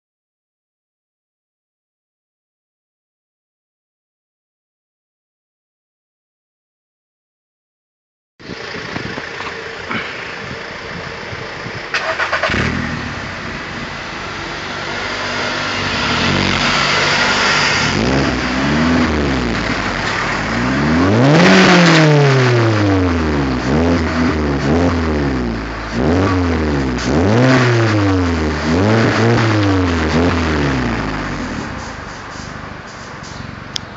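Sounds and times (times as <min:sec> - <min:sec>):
car engine revving: 0:11.9 - 0:33.8.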